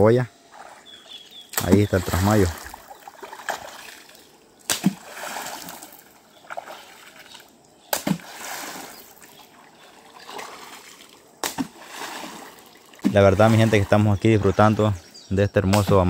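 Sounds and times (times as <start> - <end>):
water splashing and sloshing: 0.4 - 15.1
stick slapping water surface: 1.5 - 9.4, 10.0 - 14.0, 15.7 - 16.0.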